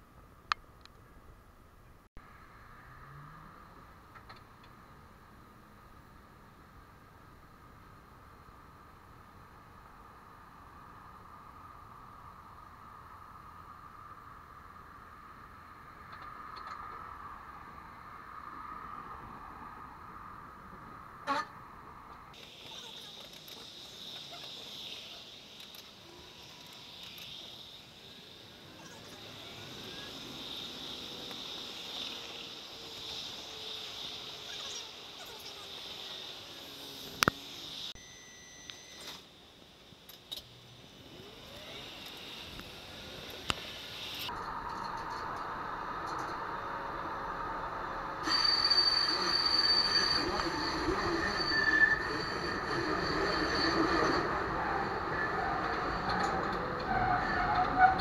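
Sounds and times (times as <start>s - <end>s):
sped-up tram hiss: 2.2s - 38.0s, 39.0s - 58.0s
faint sliding whines: 22.1s - 39.4s, 40.0s - 58.0s
tram wheels rolling on track: 41.6s - 58.0s
high wheel squeal: 46.1s - 58.0s.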